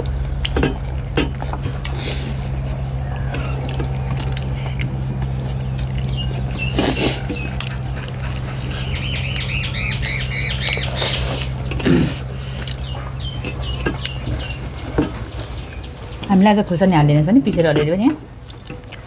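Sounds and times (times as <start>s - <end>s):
steady low hum: 0.0s - 19.0s
high bird chirping: 5.4s - 16.4s
bird squawk: 6.0s - 14.8s.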